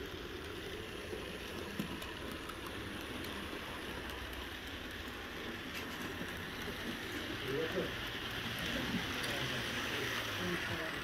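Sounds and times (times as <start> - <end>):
model train rumbling on track: 0.0 - 11.0
faint clicks: 1.4 - 5.1.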